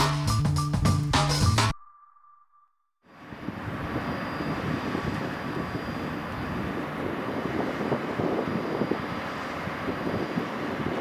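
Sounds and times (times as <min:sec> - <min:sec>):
distant light aircraft droning: 0:03.1 - 0:11.0
wind rumbling on microphone: 0:03.2 - 0:11.0.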